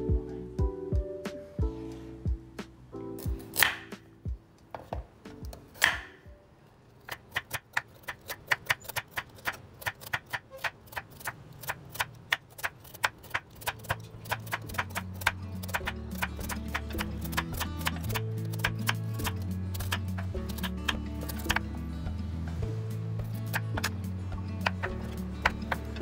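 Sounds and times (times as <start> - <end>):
knife chopping on cutting board: 5.8 - 6.1.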